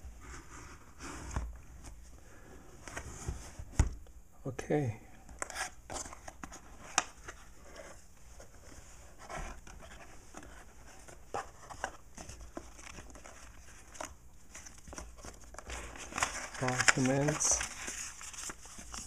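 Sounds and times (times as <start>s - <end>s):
paper rustling: 5.9s - 19.0s.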